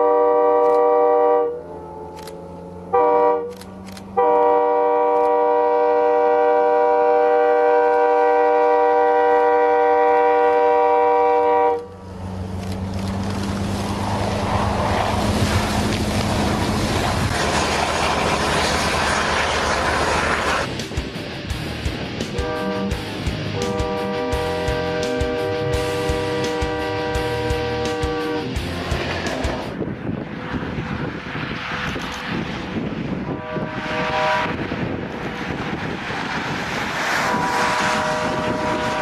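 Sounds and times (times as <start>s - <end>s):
locomotive air horn blasts: 0.0s - 11.9s, 22.3s - 29.5s, 33.2s - 34.8s, 37.2s - 39.0s
train rushing through snow: 0.0s - 39.0s
low engine hum: 11.8s - 32.9s.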